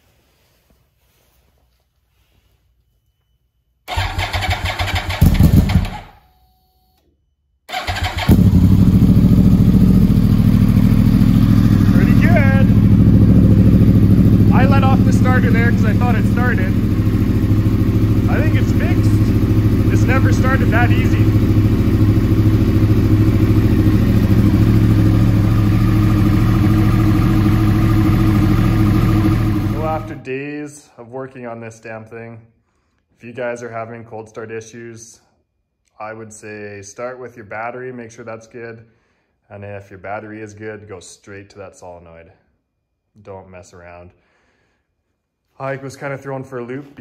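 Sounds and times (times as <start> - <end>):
motorcycle engine idling: 3.9 - 6.1, 7.7 - 30.2.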